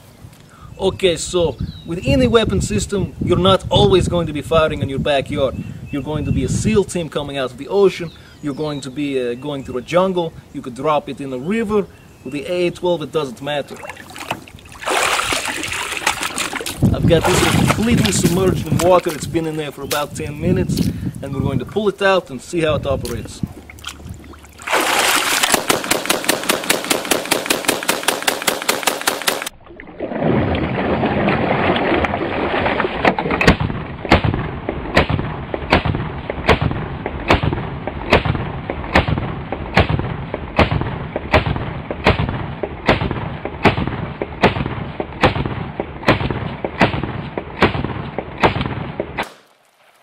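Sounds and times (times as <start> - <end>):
dull deep gunshots: 24.7 - 29.5, 33.4 - 49.4
automatic shotgun rapid burst: 25.4 - 29.5.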